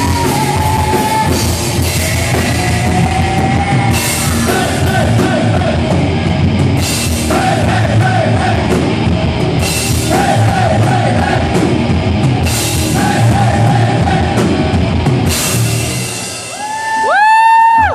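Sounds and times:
person singing: 0.0 - 6.0
rock band playing loud: 0.0 - 17.9.

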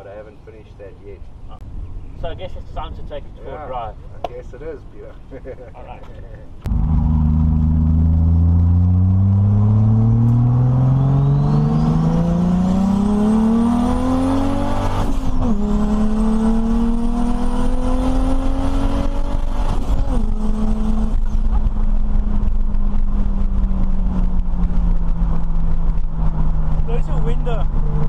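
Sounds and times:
car engine accelerating: 6.6 - 28.0.

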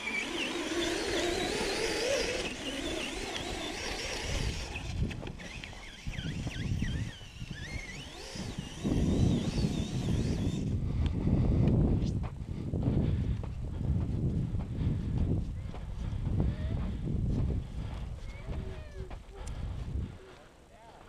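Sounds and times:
electric motors whining: 0.0 - 11.2
wind buffeting microphone: 0.0 - 20.4.

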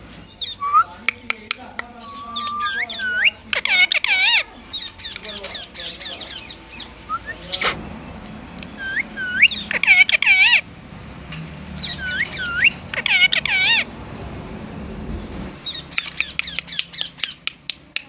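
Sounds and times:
parakeet squawking: 0.3 - 1.0, 1.9 - 7.9, 8.6 - 10.7, 11.8 - 13.9, 15.6 - 17.6.

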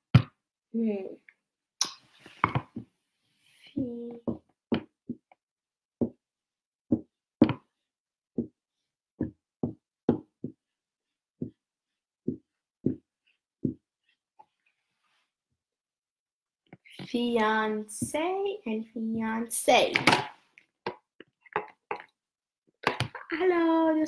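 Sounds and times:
marker knocking on whiteboard: 6.9 - 7.7, 9.2 - 10.6, 12.3 - 13.8.

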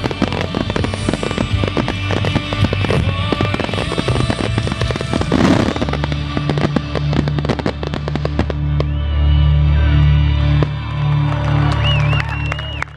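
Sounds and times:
fireworks banging and crackling: 0.0 - 9.2
crowd whistling: 6.5 - 12.9.

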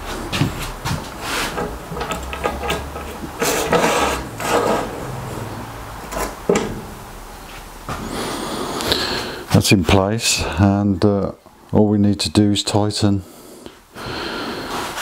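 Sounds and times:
metal rail scraping and rattling: 1.1 - 7.7.

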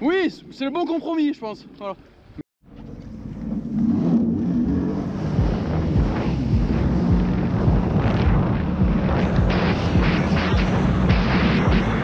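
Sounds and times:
jet ski engine running: 2.7 - 12.0
wind on microphone: 2.8 - 12.0.

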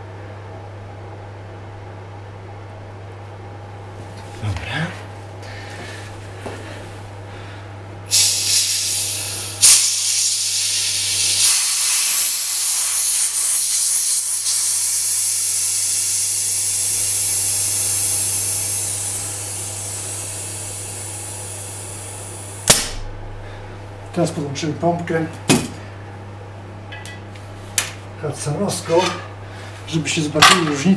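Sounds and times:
air hissing from hand pump valve: 8.1 - 22.7.

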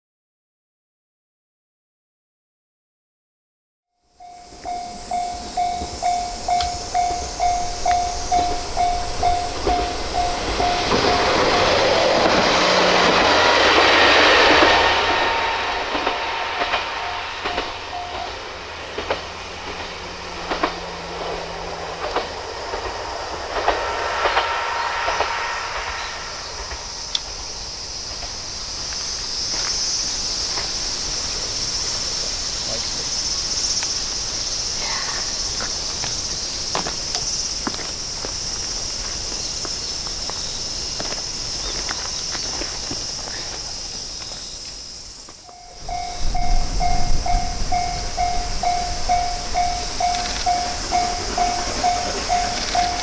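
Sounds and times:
diesel railcar passing: 4.0 - 53.0
level crossing bell ringing: 4.2 - 11.8, 45.5 - 53.0
insects shrilling: 4.2 - 13.0, 24.4 - 53.0
train wheels clicking over rail joints: 4.2 - 53.0.

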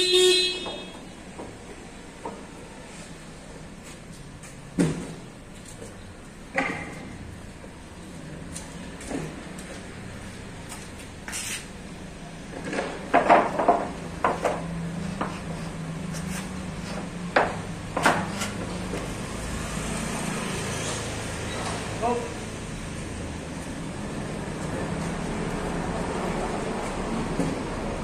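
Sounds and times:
wooden planks knocking: 12.8 - 15.3.

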